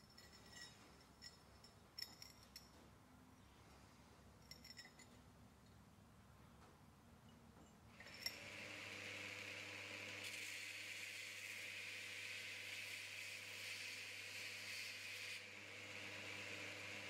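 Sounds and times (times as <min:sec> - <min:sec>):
belt grinder motor humming: 0:08.0 - 0:17.0
steel being ground hissing: 0:10.3 - 0:15.4.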